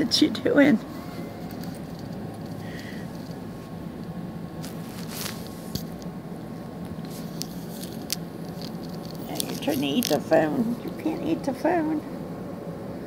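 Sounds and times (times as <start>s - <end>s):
low hum: 0.0s - 13.0s
close rustling against phone: 0.9s - 4.0s, 4.6s - 6.1s, 6.8s - 10.5s.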